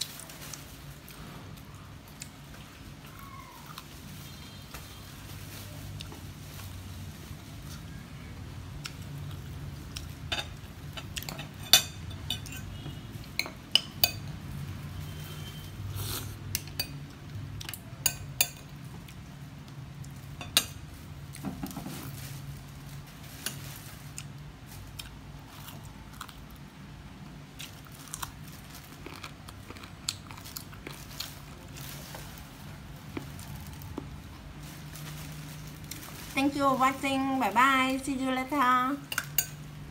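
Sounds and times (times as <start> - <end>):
metal spoon clinking against bowl: 10.3 - 14.3, 18.0 - 18.7, 39.1 - 39.6
chewing: 27.6 - 32.2.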